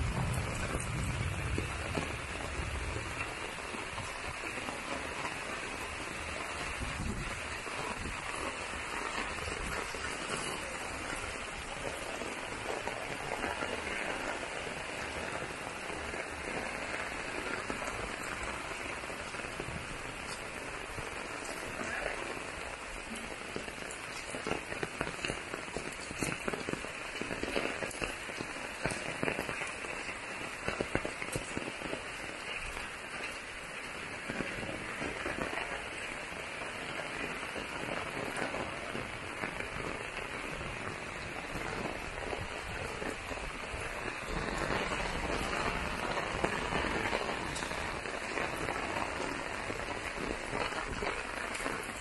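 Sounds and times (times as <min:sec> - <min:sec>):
close raindrops striking: 0:00.0 - 0:52.0
heavy rain hissing: 0:00.0 - 0:52.0.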